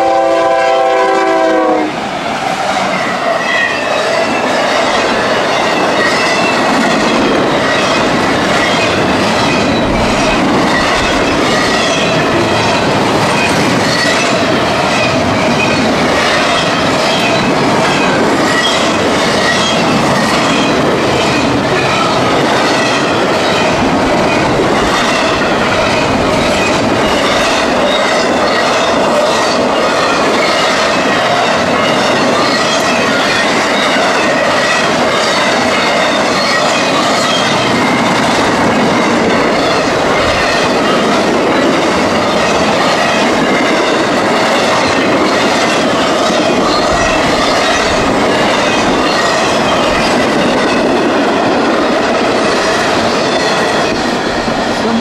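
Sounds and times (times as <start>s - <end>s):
train wheels clattering over rails: 0.0s - 55.0s.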